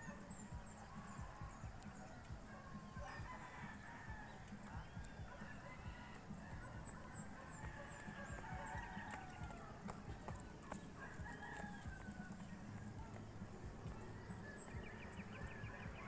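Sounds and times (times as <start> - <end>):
roosters crowing: 0.9 - 13.2.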